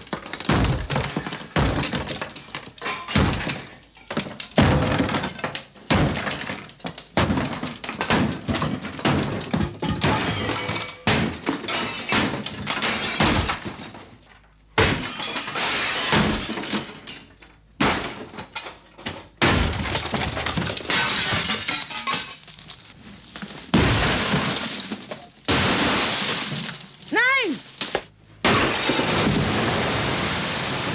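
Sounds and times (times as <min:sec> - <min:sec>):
crashes of breaking material: 0:14.8 - 0:18.7, 0:19.4 - 0:30.9
wood cracking and splintering: 0:19.4 - 0:30.0.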